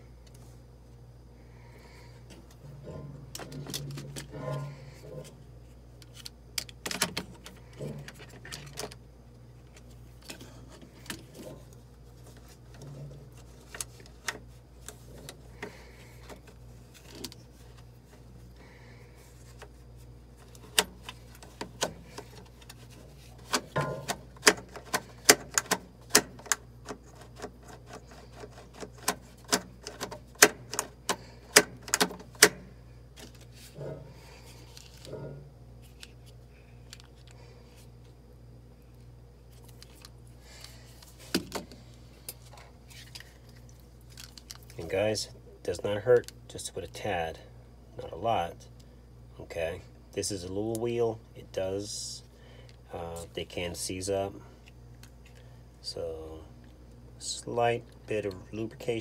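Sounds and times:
plastic parts clicking: 23.4s - 32.6s, 44.1s - 44.8s.

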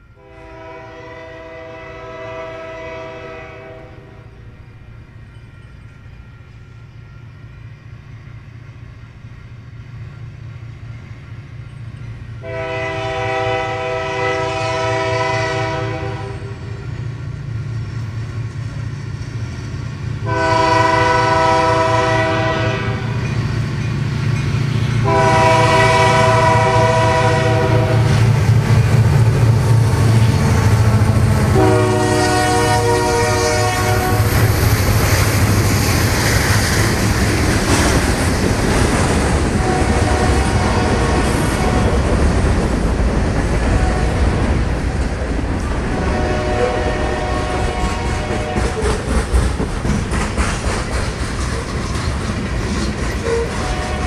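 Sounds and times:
diesel locomotive rumble: 0.0s - 54.0s
train horn blasts: 0.1s - 4.6s, 12.4s - 17.0s, 20.2s - 23.3s, 25.0s - 34.6s, 39.6s - 42.0s, 43.8s - 44.3s, 45.9s - 48.9s, 53.2s - 54.0s
freight cars rolling by: 47.5s - 54.0s.

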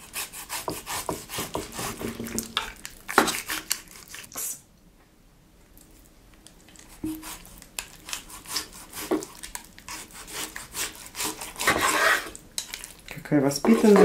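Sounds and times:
knife sawing through meat: 0.0s - 2.0s, 8.1s - 9.3s, 9.9s - 12.4s
knife scraping wooden board: 0.0s - 4.3s, 7.0s - 9.3s, 9.9s - 12.4s, 13.6s - 14.0s.

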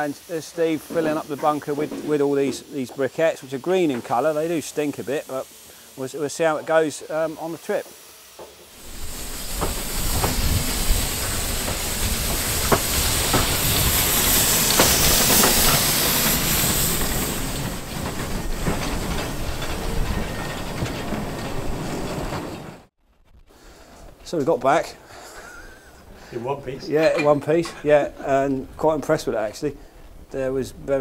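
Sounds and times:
steam hissing: 0.0s - 22.9s, 23.7s - 26.6s
wheels clicking over rail joints: 8.5s - 22.9s
train rumble: 8.7s - 22.9s.

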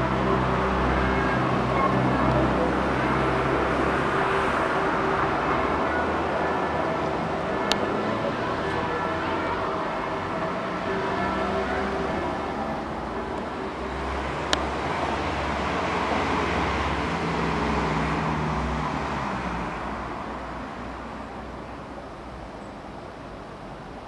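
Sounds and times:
vehicle passing by: 0.0s - 21.2s.

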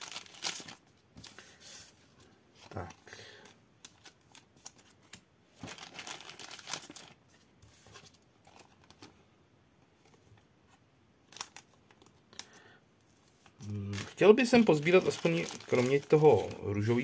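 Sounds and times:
plastic sleeves crinkling: 0.0s - 1.4s, 2.6s - 9.2s, 11.2s - 12.6s, 13.4s - 17.0s.

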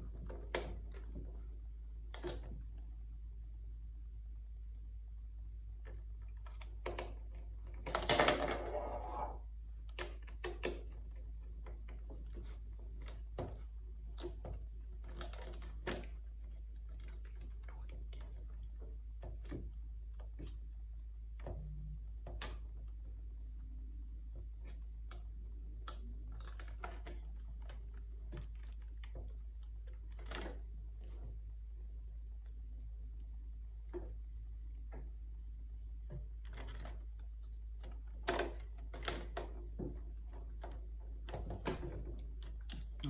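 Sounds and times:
steady low hum: 0.0s - 8.0s, 23.0s - 43.0s.

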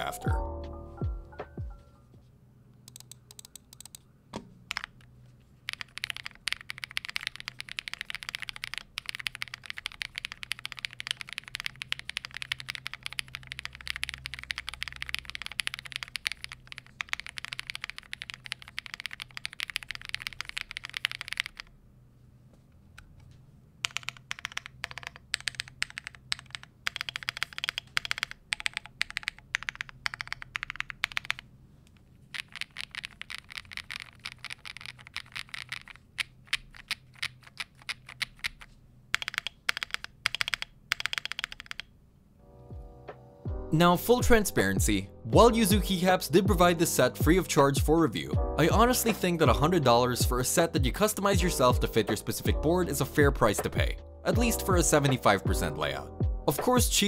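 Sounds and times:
mechanical keyboard typing: 2.9s - 4.0s, 4.7s - 5.0s, 5.6s - 21.7s, 23.8s - 31.4s, 32.3s - 41.9s.

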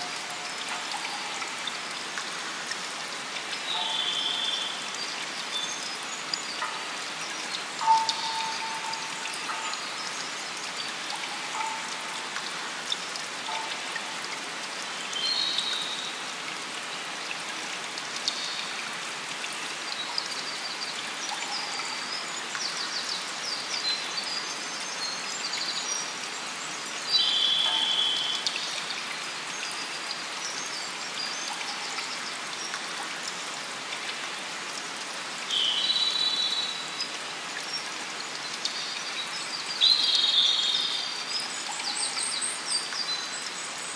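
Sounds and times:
steady rain: 0.0s - 43.9s
water dripping: 0.0s - 43.9s
high bird calls and trills: 3.6s - 12.4s.

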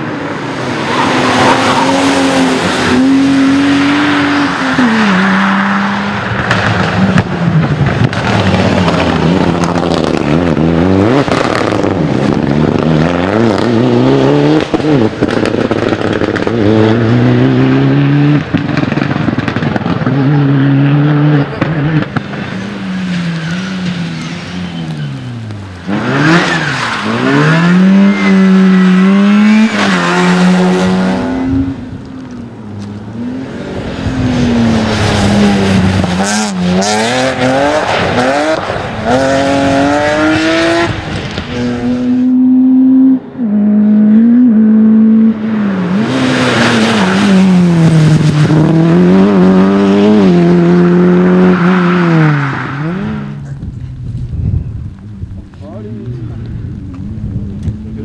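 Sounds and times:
rally cars passing at full throttle: 0.0s - 58.0s.

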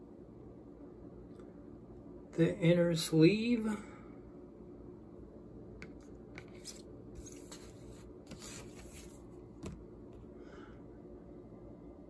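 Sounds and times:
paper sleeve rustling: 6.5s - 9.2s.

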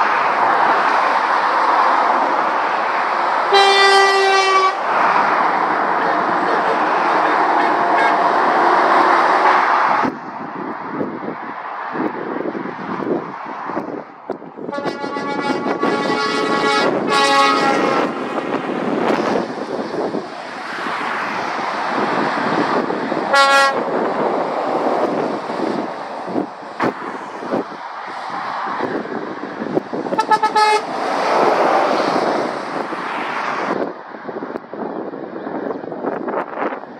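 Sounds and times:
lorries passing: 0.0s - 36.9s
lorry air horns: 3.5s - 4.8s, 6.1s - 8.4s, 14.7s - 18.2s, 23.3s - 23.8s, 30.2s - 30.9s.

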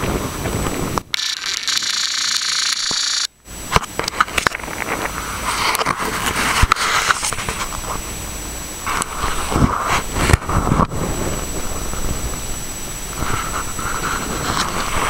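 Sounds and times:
high hiss: 0.0s - 15.0s
wind rumbling on microphone: 0.0s - 15.0s.

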